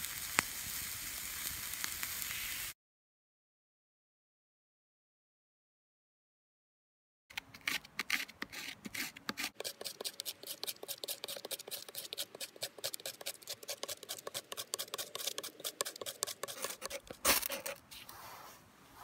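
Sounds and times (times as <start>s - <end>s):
knife scraping bark: 7.4s - 18.1s.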